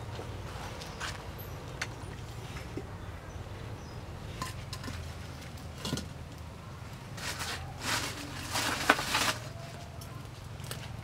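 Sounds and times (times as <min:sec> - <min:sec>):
dry grass crackling in fire: 0:05.2 - 0:11.0.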